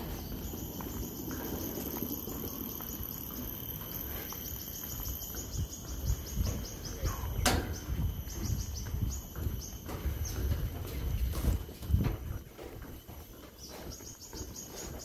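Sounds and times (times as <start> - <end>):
insect chirping in rapid pulses: 0.0 - 11.3
faint high insect whine: 0.0 - 15.0
footsteps on walkway deck: 0.0 - 15.0.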